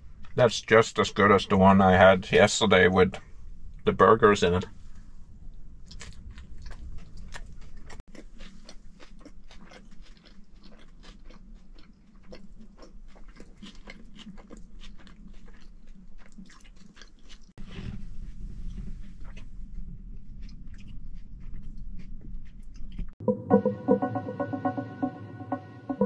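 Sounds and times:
person chewing food: 0:05.8 - 0:23.2.

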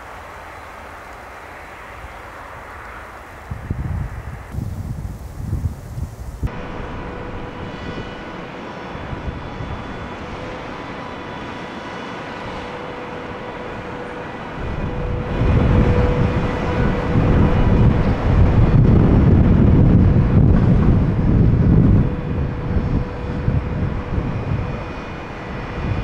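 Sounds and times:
jet engines whining: 0:00.0 - 0:26.0
low engine rumble: 0:00.0 - 0:26.0.

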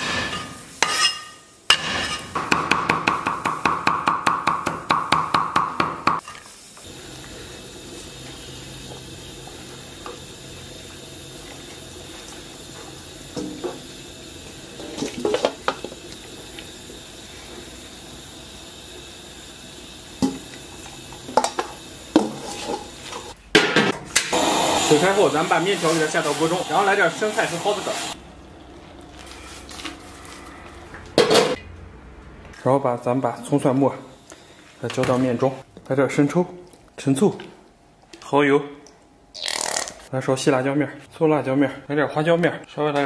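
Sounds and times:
simmering pot hiss: 0:06.2 - 0:23.4, 0:24.2 - 0:30.4.

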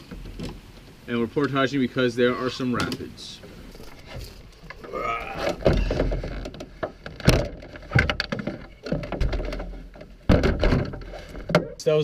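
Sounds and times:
canoe hull knocking and thumping: 0:05.4 - 0:11.8.

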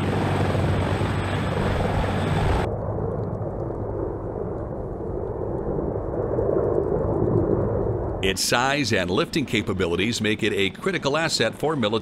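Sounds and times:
helicopter rotor rumble: 0:00.0 - 0:03.1, 0:08.2 - 0:12.0.

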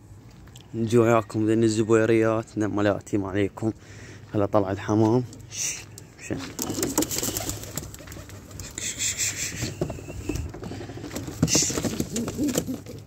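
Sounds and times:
pigeons cooing: 0:06.5 - 0:13.0.

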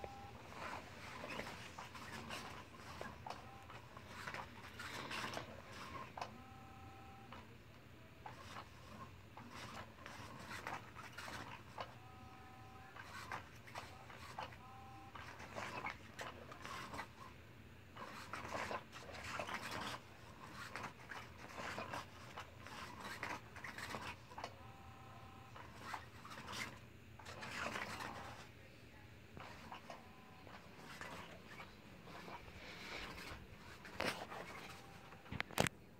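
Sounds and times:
fabric rustling: 0:29.5 - 0:35.7.

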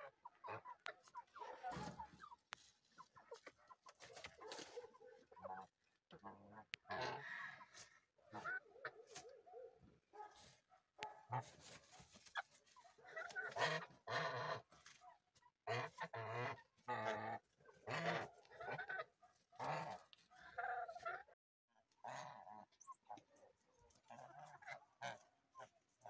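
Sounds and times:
geese honking: 0:00.0 - 0:08.6, 0:11.0 - 0:21.3
chickens clucking: 0:00.0 - 0:21.4, 0:22.0 - 0:26.0.

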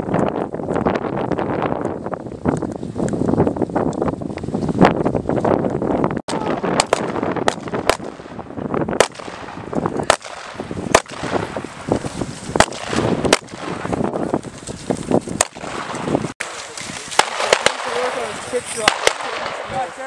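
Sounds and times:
wind on microphone: 0:00.0 - 0:20.0
skis swishing through snow: 0:11.6 - 0:12.6, 0:17.9 - 0:18.9.

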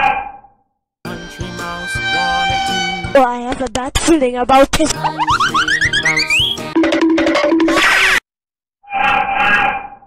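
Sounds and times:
children's song with singing: 0:04.7 - 0:06.8.

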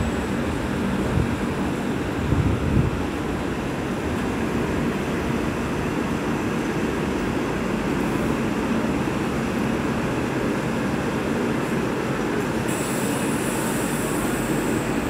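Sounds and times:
train wheels rumbling on rails: 0:00.0 - 0:15.0
high hiss: 0:12.7 - 0:15.0.

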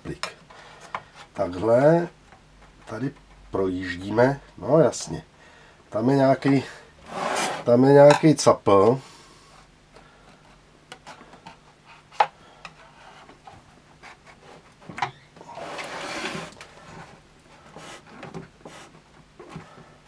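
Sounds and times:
knife scraping plastic grille frame: 0:15.4 - 0:16.6.

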